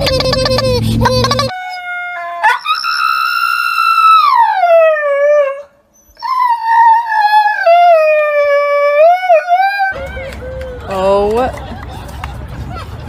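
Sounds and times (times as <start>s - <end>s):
husky howling: 1.3s - 10.0s.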